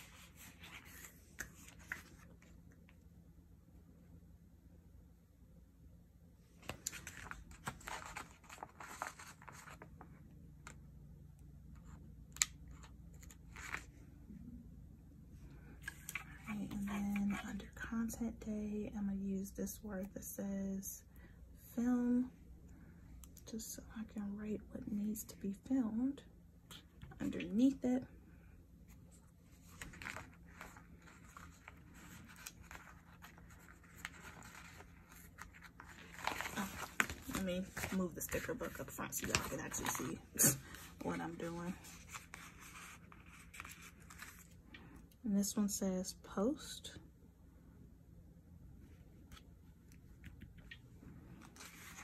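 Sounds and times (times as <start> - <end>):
paper sheets rustling: 6.6 - 9.9, 29.5 - 44.6, 51.4 - 52.0.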